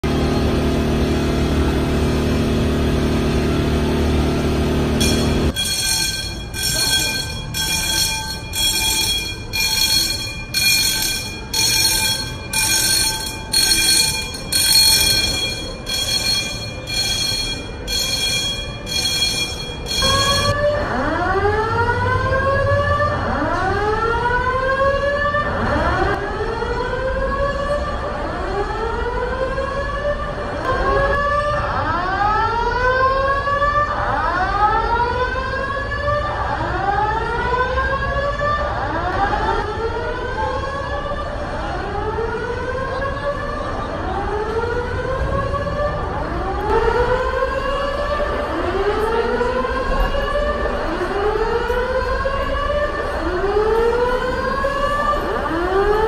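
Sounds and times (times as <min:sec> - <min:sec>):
low alarm horn tone: 0:04.0 - 0:23.1
high pulsing alarm beeps: 0:05.0 - 0:20.6.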